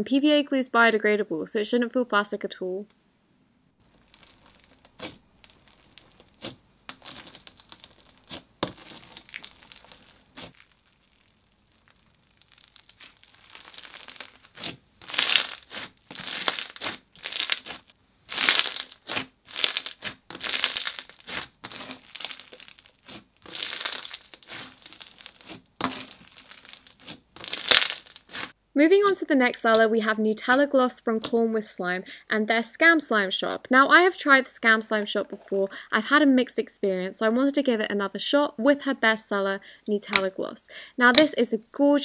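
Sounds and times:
slime crackling and crunching: 3.8s - 28.6s.

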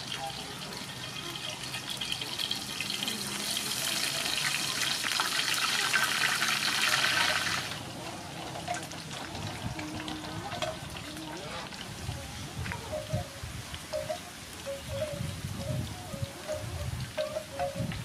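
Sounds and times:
fritter deep-frying in oil: 0.0s - 12.9s.

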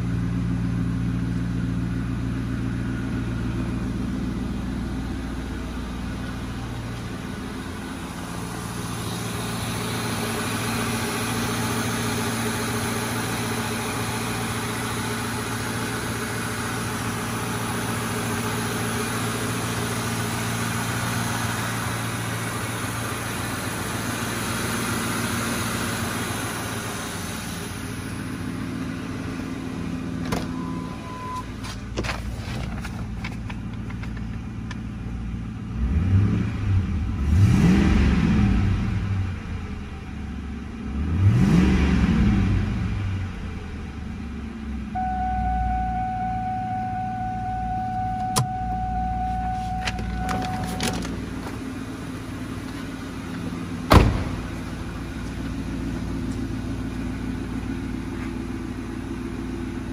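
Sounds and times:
car engine idling: 0.0s - 41.2s, 42.0s - 59.9s
engine mechanical whir: 25.8s - 35.0s, 40.9s - 59.9s.

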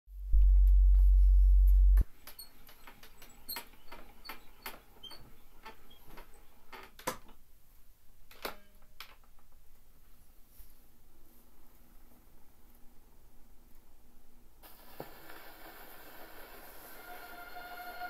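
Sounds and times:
loud low hum: 0.2s - 2.0s.

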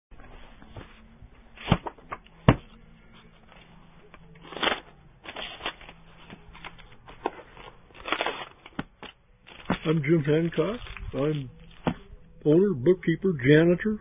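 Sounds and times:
books set down on counter: 0.2s - 1.0s, 1.6s - 2.8s, 4.6s - 10.0s
pages rustling: 0.2s - 12.1s.

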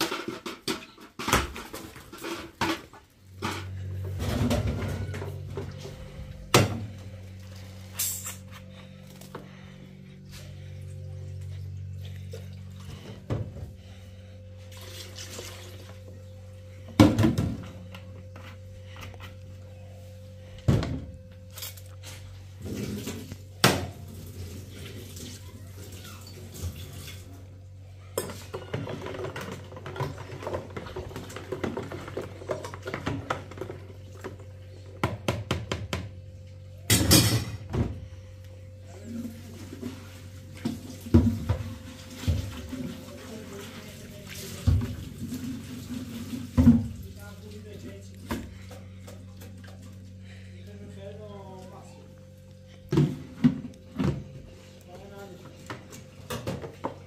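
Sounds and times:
pots and dishes clattering: 0.0s - 5.9s, 28.2s - 34.4s, 36.8s - 38.0s
running water: 39.0s - 48.2s.

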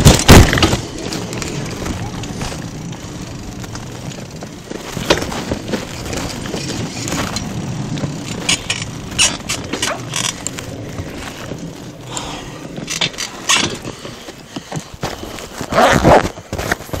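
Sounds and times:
bicycle rolling rumble: 0.0s - 17.0s
bike rattling and clacking: 0.0s - 17.0s.

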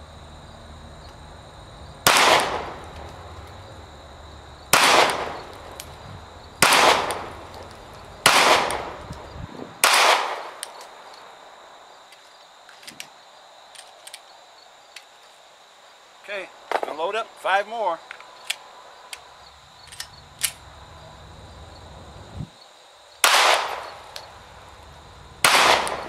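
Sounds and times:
crickets chirping: 0.0s - 26.0s
pistol shots with echo: 2.0s - 2.8s, 4.7s - 5.5s, 6.6s - 7.4s, 8.2s - 9.0s, 9.8s - 10.6s, 23.2s - 24.0s, 25.4s - 26.0s
faint small clicks: 13.7s - 14.3s.

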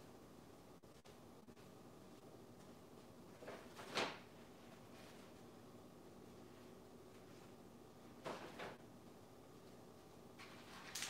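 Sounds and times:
low steady hum: 0.0s - 11.0s.

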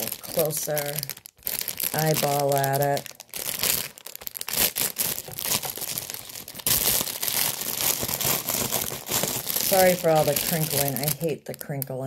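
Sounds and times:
plastic bag crinkling and tearing: 0.0s - 12.0s.

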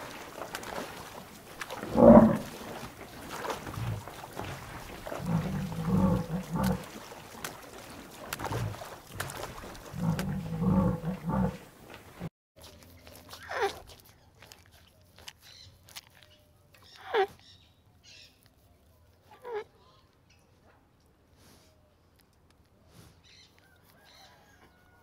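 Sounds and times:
water buffalo lowing: 0.3s - 7.0s, 8.4s - 12.3s.

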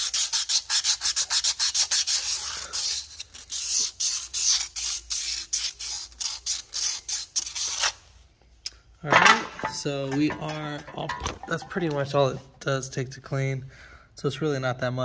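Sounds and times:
sandpaper rubbing metal: 0.0s - 7.9s.

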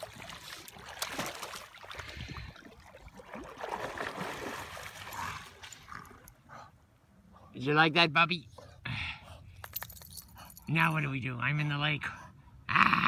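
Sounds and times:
water splashing and sloshing: 0.0s - 7.0s.

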